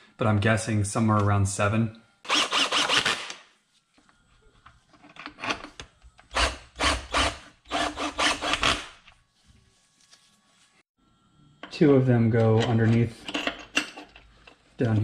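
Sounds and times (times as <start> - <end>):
cordless power tool driving bolts: 2.3 - 3.4.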